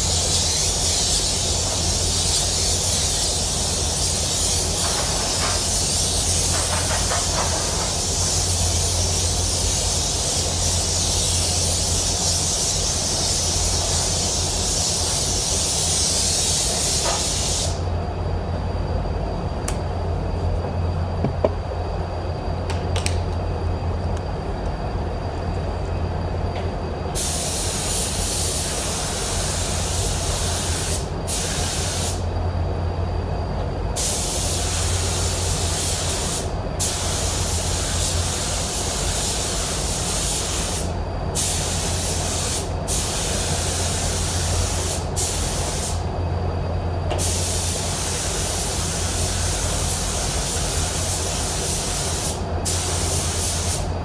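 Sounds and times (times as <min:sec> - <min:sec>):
spray gun hissing: 0:00.0 - 0:17.9, 0:27.2 - 0:32.2, 0:34.0 - 0:46.1, 0:47.2 - 0:54.0
low air system hum: 0:00.0 - 0:54.0.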